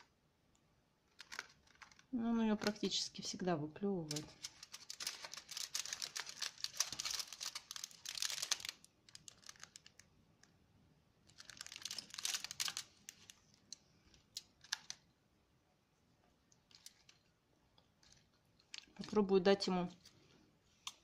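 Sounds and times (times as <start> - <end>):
wrapper crinkling and rustling: 1.1 - 3.0, 4.0 - 10.5, 11.2 - 15.0, 16.7 - 17.3, 18.0 - 20.2.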